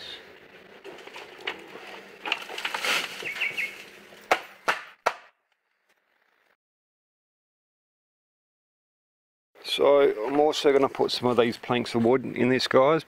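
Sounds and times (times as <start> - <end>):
dry leaves rustling and crackling: 0.3 - 4.3
sharp knocks: 4.3 - 5.4.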